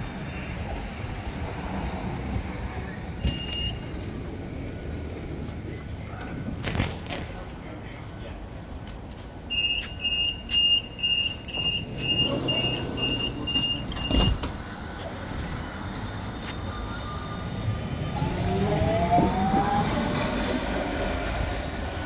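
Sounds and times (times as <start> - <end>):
tram motors whining: 9.5 - 22.0
tram doors shutting thud: 11.4 - 15.0.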